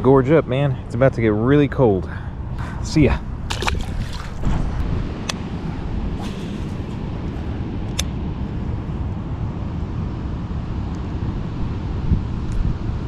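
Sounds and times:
wind on microphone: 2.6s - 13.0s
runoff water flowing: 3.3s - 5.0s
sharp click: 7.9s - 8.1s.

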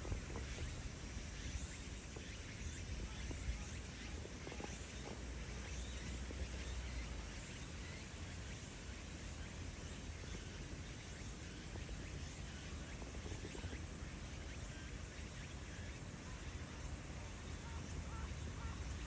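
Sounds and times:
insects chirping: 0.0s - 19.0s.

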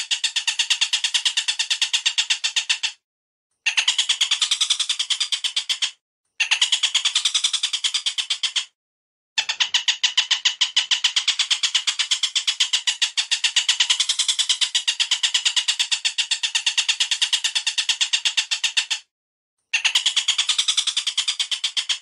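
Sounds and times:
bird chattering notes: 3.7s - 8.6s, 9.4s - 18.9s, 19.8s - 22.0s.

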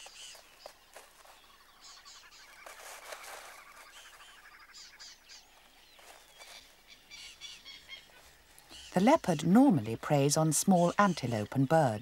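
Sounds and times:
birds chirping and whistling: 3.8s - 9.3s.

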